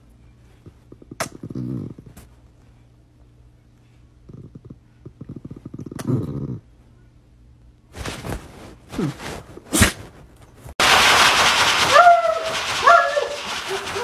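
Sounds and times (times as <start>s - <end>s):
dog growling: 0.9s - 2.2s, 4.2s - 6.7s
scuffling: 8.0s - 10.8s
grooming dryer blowing: 10.8s - 14.0s.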